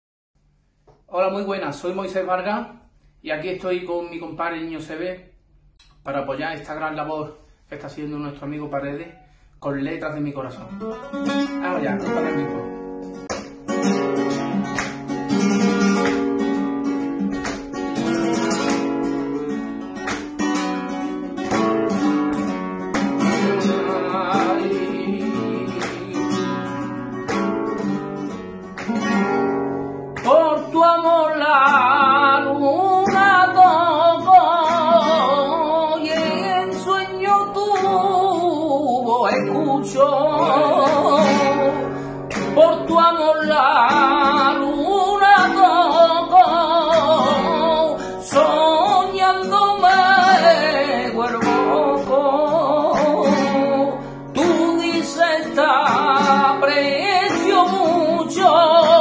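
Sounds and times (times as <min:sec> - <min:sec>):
flamenco guitar: 0:00.5 - 0:59.0
man singing flamenco: 0:11.5 - 0:12.8, 0:21.5 - 0:27.5, 0:30.2 - 0:59.0.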